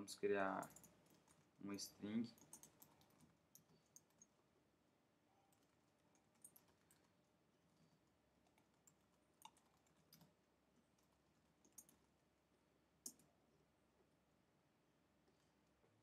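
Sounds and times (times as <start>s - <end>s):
computer keyboard keystrokes: 2.4s - 4.3s, 5.5s - 7.1s, 8.5s - 10.3s, 11.6s - 12.0s.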